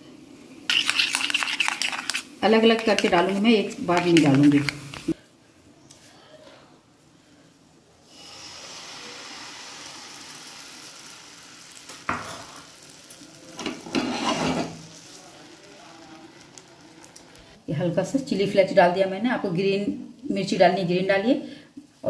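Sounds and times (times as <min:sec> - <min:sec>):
batter sizzling in a pan: 0:00.0 - 0:05.2, 0:08.0 - 0:17.6
utensil scraping and clattering: 0:00.7 - 0:05.2, 0:13.6 - 0:14.8.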